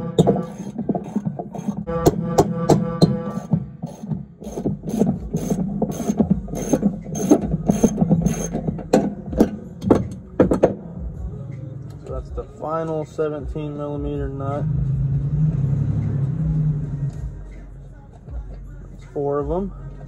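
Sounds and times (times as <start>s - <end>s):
ratchet wrench clicking: 3.9s - 8.6s.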